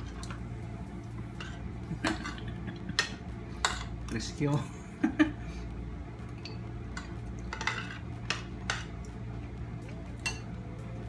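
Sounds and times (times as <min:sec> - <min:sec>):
steady low hum: 0:00.0 - 0:11.0
cutlery clinking on plates: 0:06.4 - 0:09.0.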